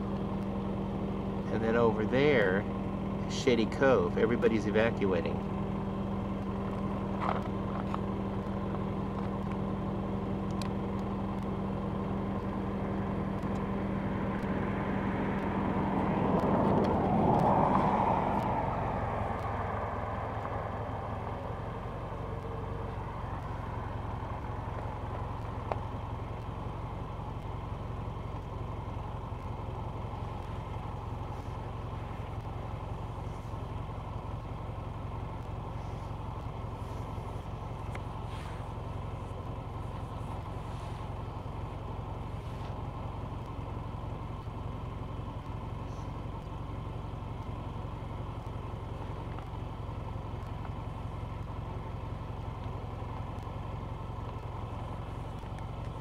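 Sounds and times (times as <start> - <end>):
steady low hum: 0.0 - 56.0
motor vehicle passing by: 12.9 - 23.9, 36.8 - 41.5.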